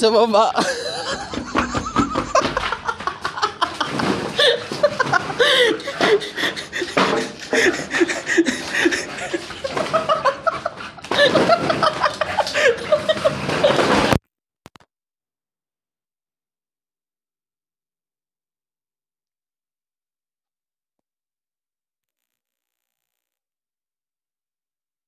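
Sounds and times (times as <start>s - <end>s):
man laughing: 0.6s - 14.0s
phone rubbing and knocking: 0.8s - 10.6s.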